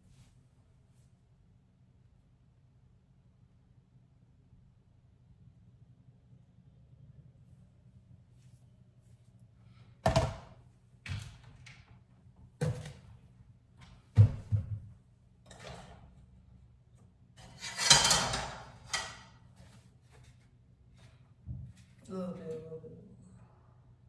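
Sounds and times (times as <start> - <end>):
knocks and clunks of objects: 10.0 - 12.0.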